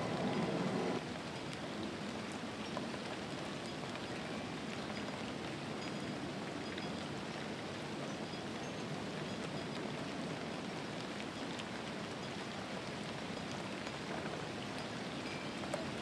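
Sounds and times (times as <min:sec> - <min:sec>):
steady rain patter: 0:00.0 - 0:16.0.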